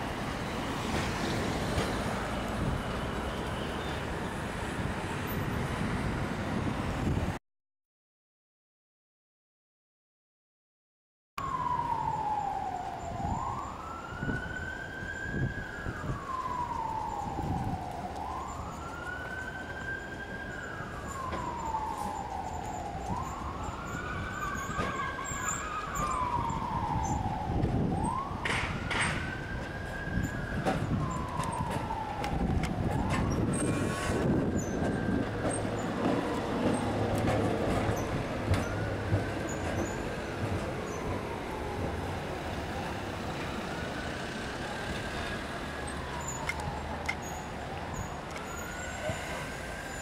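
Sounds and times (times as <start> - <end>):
street traffic: 0.0 - 7.4, 11.4 - 50.0
siren wailing: 11.4 - 50.0.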